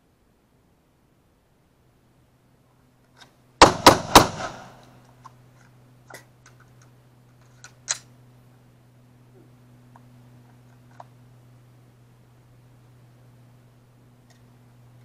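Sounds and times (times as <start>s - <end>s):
pistol shots: 3.6s - 4.9s.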